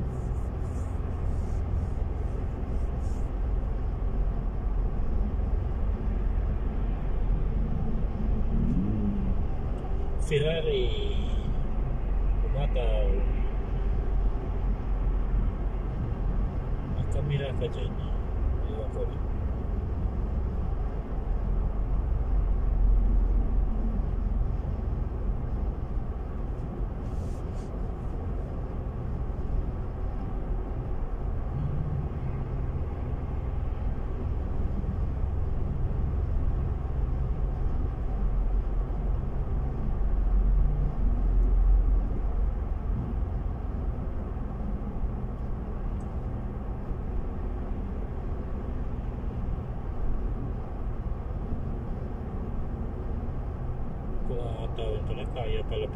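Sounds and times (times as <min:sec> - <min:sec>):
car engine and road noise: 0:00.0 - 0:55.9.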